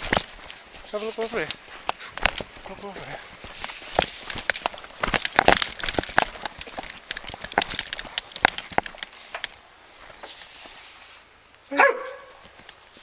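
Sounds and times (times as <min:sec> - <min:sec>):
metallic jingling and rattling: 0:00.0 - 0:09.6
hurried footsteps: 0:00.0 - 0:10.4.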